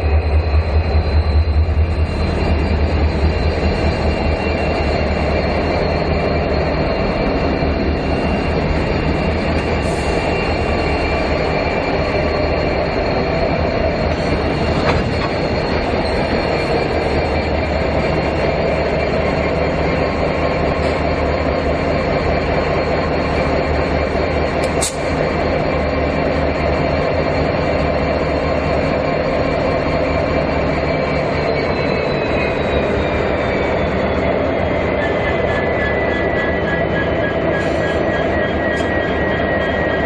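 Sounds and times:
diesel locomotive engine drone: 0.0 - 40.0
click: 24.6 - 25.1.

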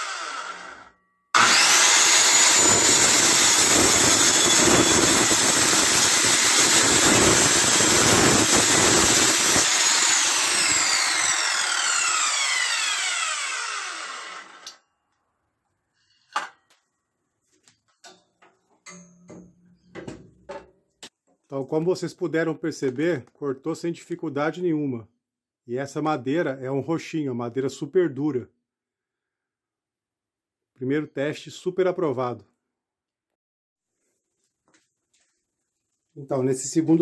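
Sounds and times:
circular saw cutting wood: 0.0 - 14.8.

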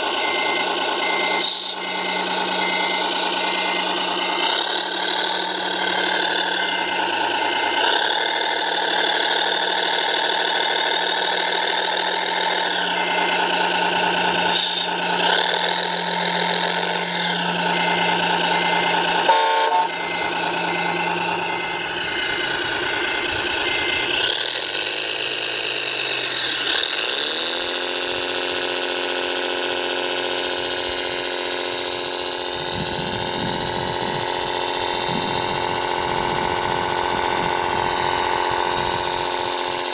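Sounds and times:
model crane motor whine: 0.0 - 39.9
quick high beep: 0.2 - 7.0.

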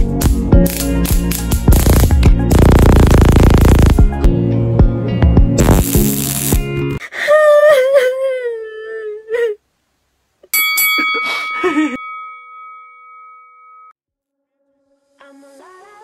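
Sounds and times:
woman wailing sob: 7.1 - 9.6.

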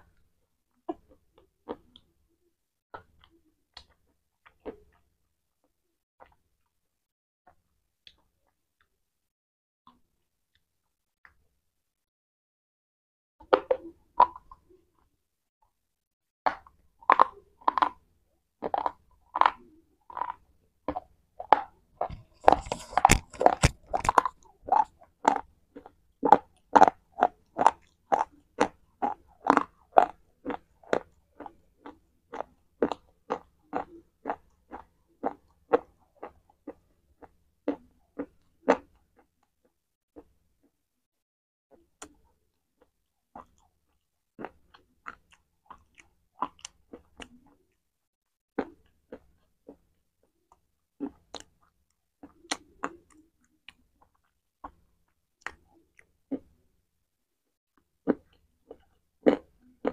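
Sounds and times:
crunching bites and chews: 16.5 - 39.3, 42.8 - 47.7, 48.6 - 56.6, 58.0 - 59.9.

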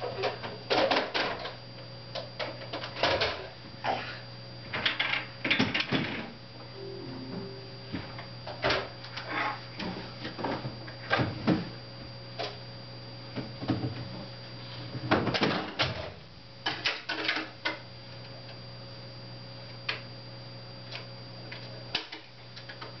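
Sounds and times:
steady low hum: 6.7 - 8.6.

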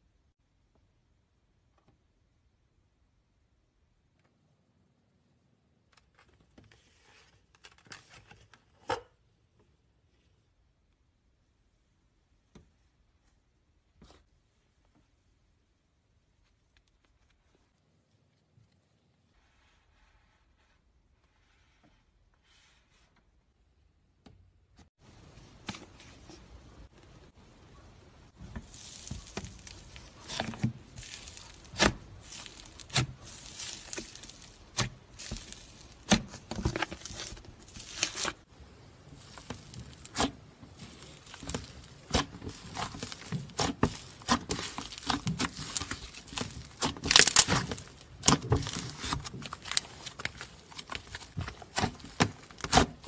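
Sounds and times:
slime crackling and popping: 28.6 - 53.0.

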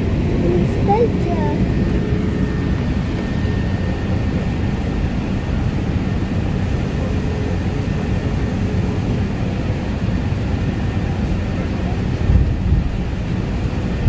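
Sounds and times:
jet engines roaring: 0.0 - 14.0
wheels rumbling on runway: 0.0 - 14.0.

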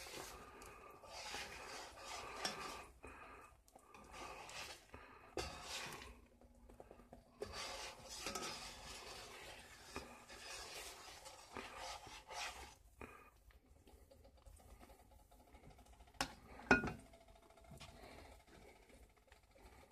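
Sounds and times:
fork scraping eggs in skillet: 0.0 - 13.2.

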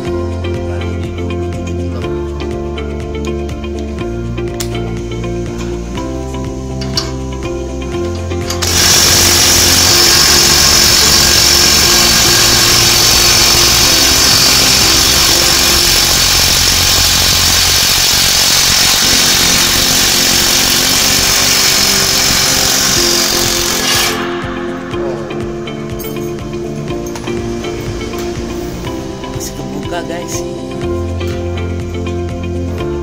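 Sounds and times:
background music: 0.0 - 33.0
impact wrench hammering: 8.1 - 28.4.

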